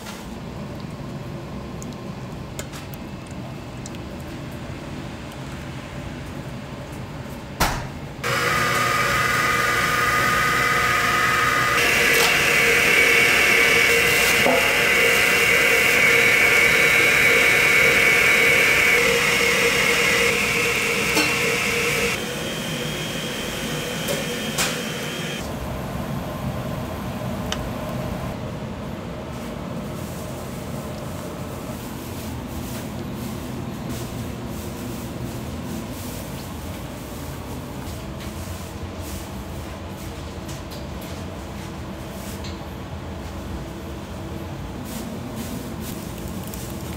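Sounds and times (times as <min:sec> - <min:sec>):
machine whining and hissing: 0:08.2 - 0:27.4.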